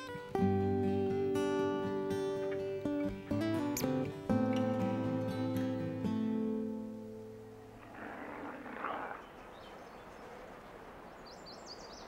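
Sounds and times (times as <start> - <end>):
acoustic guitar chord ringing: 0.0 - 7.8.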